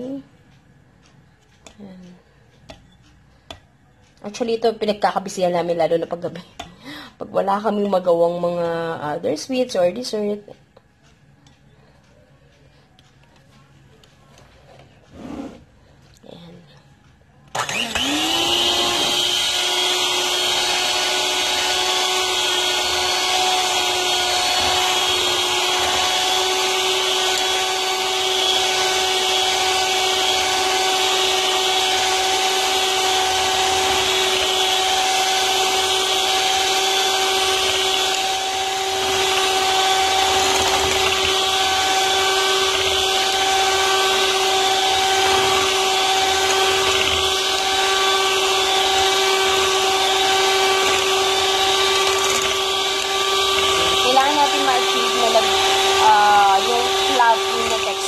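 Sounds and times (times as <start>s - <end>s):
electric mixer whining: 17.5s - 58.0s.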